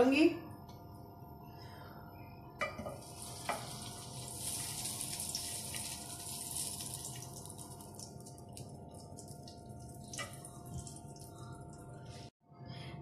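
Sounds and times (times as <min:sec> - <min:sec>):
ghee sizzling in a frying pan: 0:02.9 - 0:08.2.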